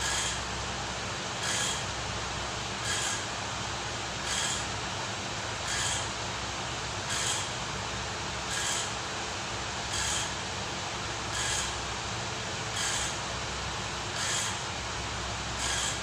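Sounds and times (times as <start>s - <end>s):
machine humming and hissing: 0.0s - 16.0s
sharp hissing pulses: 1.3s - 2.0s, 2.7s - 4.8s.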